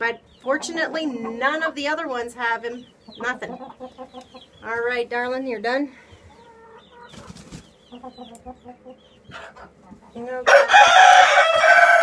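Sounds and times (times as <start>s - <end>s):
chickens clucking softly: 0.1s - 4.8s, 6.1s - 10.5s
rooster crowing: 10.4s - 12.0s.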